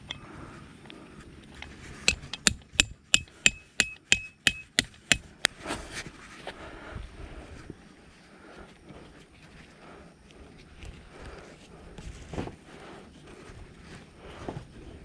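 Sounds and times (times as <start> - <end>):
hammer striking metal tent peg: 2.1 - 5.5.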